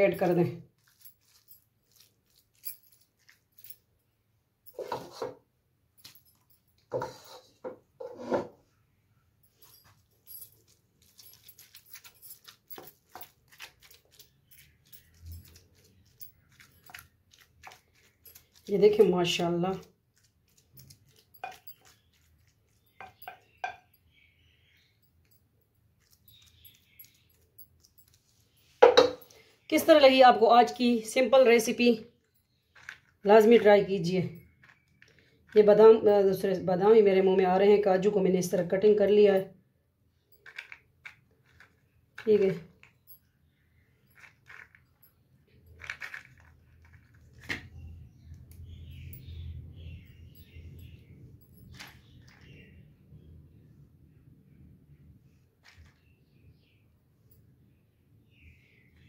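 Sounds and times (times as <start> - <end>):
spoon scraping bowl: 4.8 - 5.4, 6.8 - 8.6, 11.0 - 24.0
spoon tapping glass bowl: 23.0 - 23.9.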